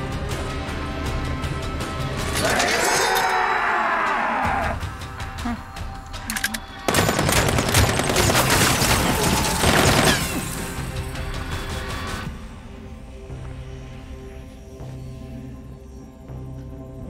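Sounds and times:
film score music: 0:00.0 - 0:17.0
automatic gunfire: 0:06.9 - 0:10.5.

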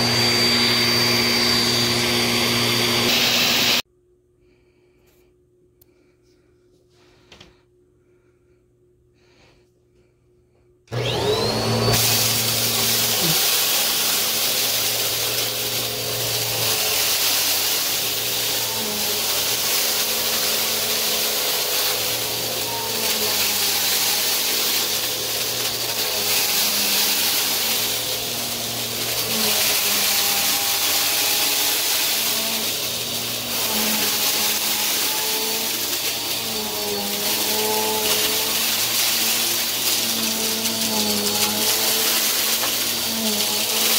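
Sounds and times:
vacuum cleaner motor whine: 0:00.0 - 0:03.8, 0:10.9 - 0:43.9
gritty debris being sucked up: 0:12.0 - 0:43.9.

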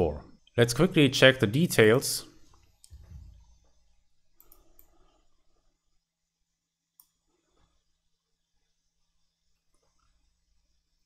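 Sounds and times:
computer mouse clicks: 0:04.4 - 0:05.2, 0:07.0 - 0:07.2.

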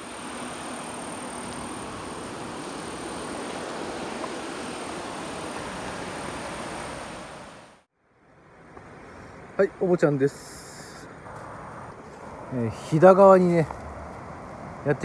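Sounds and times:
high steady whine: 0:00.0 - 0:07.8.

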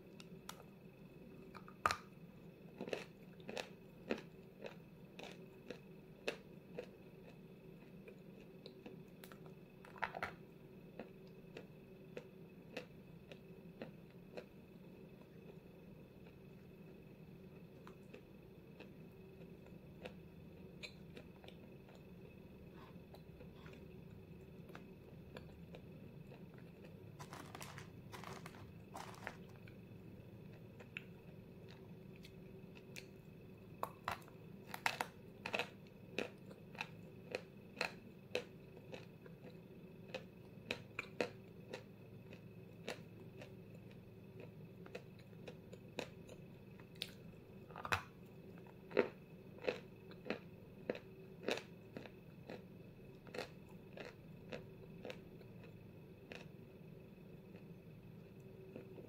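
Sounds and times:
crunchy chalk chewing: 0:02.8 - 0:10.4, 0:17.5 - 0:33.2, 0:33.8 - 0:56.5.

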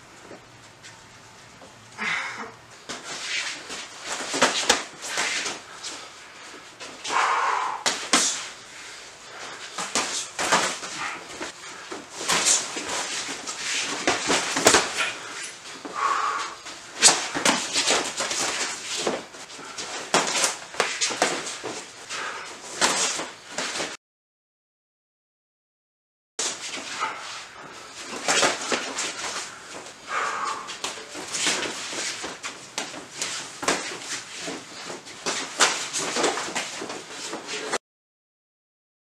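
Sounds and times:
punches and kicks landing: 0:14.0 - 0:15.1
feet shuffling on foam mats: 0:26.4 - 0:37.8.

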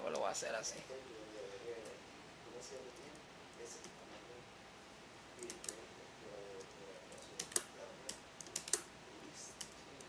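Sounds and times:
typing on computer keyboard: 0:07.4 - 0:08.8.

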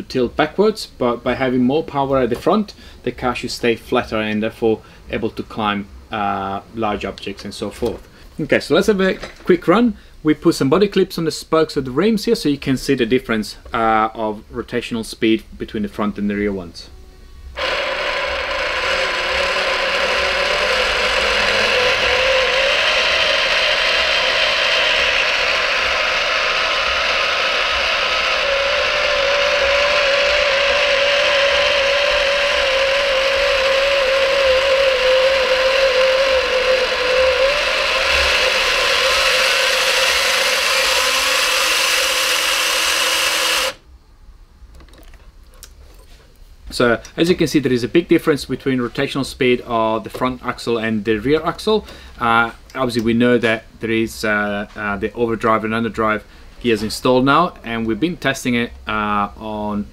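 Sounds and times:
electric motor gear whine: 0:17.0 - 0:43.8.

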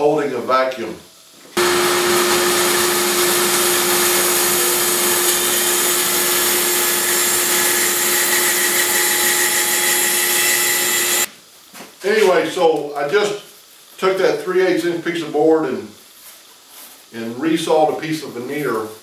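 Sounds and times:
bandsaw cutting wood: 0:01.6 - 0:11.3.

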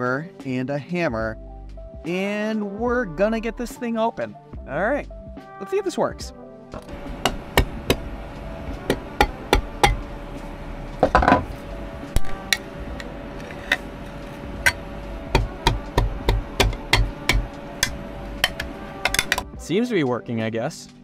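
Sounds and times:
metal scraping: 0:06.8 - 0:19.4
hammer tapping screwdriver on metal: 0:08.9 - 0:10.0, 0:14.6 - 0:19.4.

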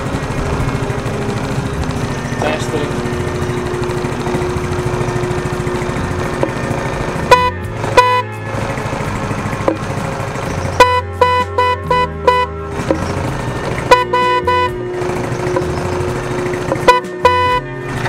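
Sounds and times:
motorcycle engine running: 0:00.0 - 0:18.0
motorcycle horn toots: 0:07.2 - 0:08.8, 0:10.7 - 0:12.8, 0:13.7 - 0:15.2, 0:16.7 - 0:18.0.

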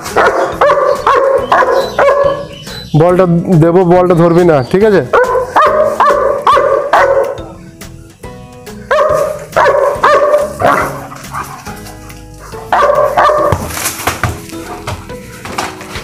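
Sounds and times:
dog barking: 0:00.0 - 0:02.6, 0:05.1 - 0:07.6, 0:08.9 - 0:13.8.

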